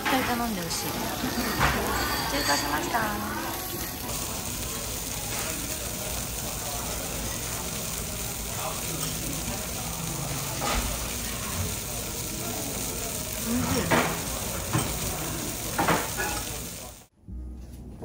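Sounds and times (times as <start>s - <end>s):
food sizzling: 0.0s - 17.1s
chopsticks and spoon clinking on bowl: 1.2s - 4.0s, 13.8s - 16.6s.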